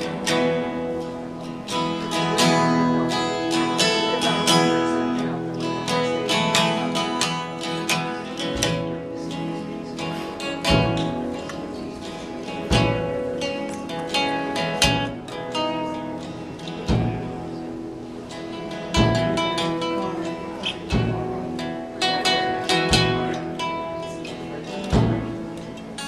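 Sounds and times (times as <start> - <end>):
acoustic guitars strumming: 0.0 - 26.0
low thumps: 12.7 - 13.4, 16.8 - 17.6, 18.9 - 19.6, 20.8 - 24.0, 24.9 - 25.8.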